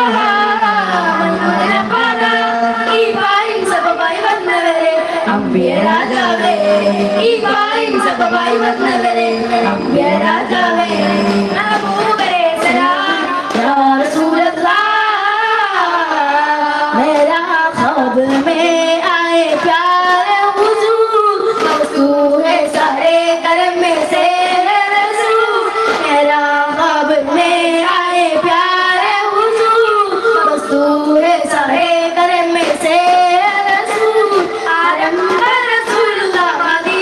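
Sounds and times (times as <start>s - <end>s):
boys singing: 0.0s - 37.0s.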